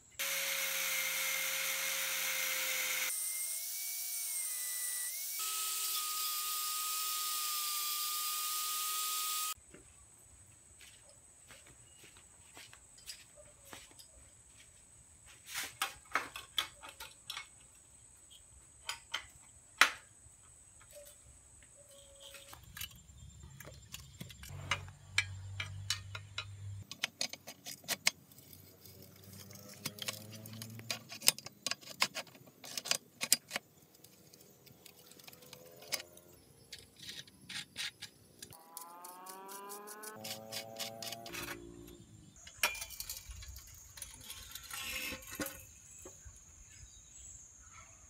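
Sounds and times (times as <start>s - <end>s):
metal clinks and scrapes: 21.9s - 46.2s.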